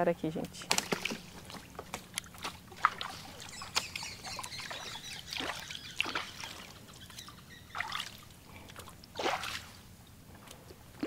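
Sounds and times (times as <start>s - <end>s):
short splashes: 0.6s - 9.9s
water trickling and dripping: 1.4s - 10.2s.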